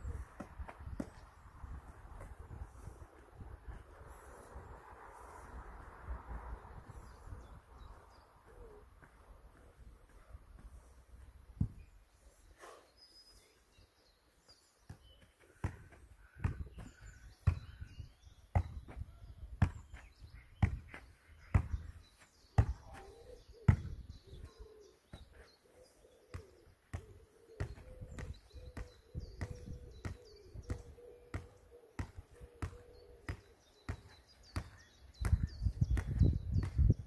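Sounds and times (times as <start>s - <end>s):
birds chirping: 6.4s - 37.0s
volleyball thuds: 20.6s - 21.9s, 23.7s - 24.0s, 26.3s - 37.0s.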